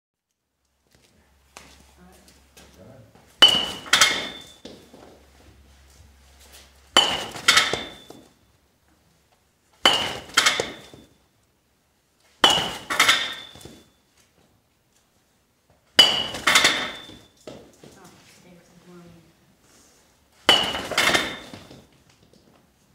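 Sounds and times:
baseball bat hitting balls: 3.3s - 4.9s, 6.6s - 8.4s, 9.8s - 11.2s, 12.3s - 13.9s, 15.9s - 17.9s, 20.4s - 22.3s
ringing metal clank: 3.4s - 4.7s, 7.0s - 8.3s, 12.4s - 13.9s, 16.0s - 17.4s, 20.5s - 21.6s.

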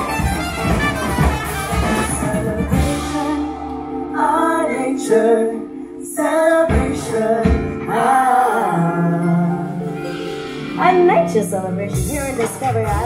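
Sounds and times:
music: 0.0s - 13.0s
woman singing: 1.8s - 10.0s, 10.8s - 13.0s.

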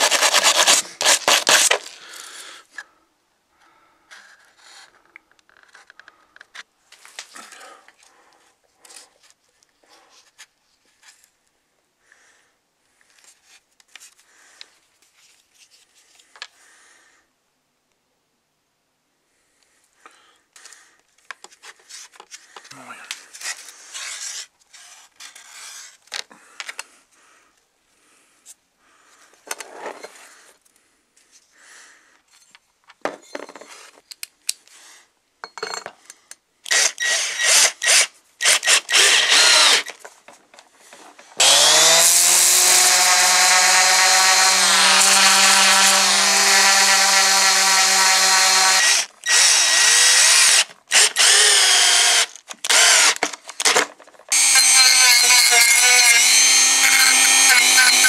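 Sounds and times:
cordless drill driving screw: 36.7s - 39.9s, 41.4s - 58.0s.

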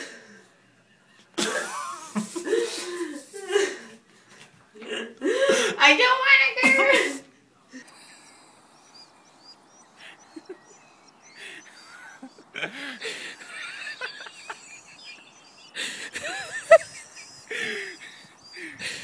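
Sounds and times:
man laughing: 1.4s - 3.0s, 7.8s - 8.7s, 10.0s - 19.0s.

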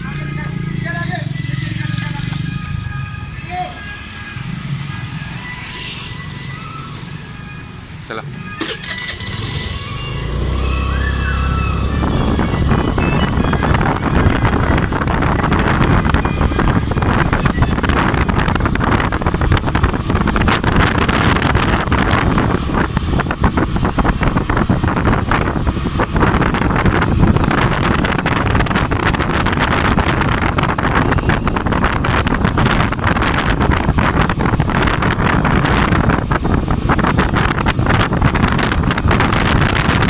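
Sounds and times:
vehicle road noise: 0.0s - 40.0s
wind rushing over microphone: 8.9s - 40.0s.

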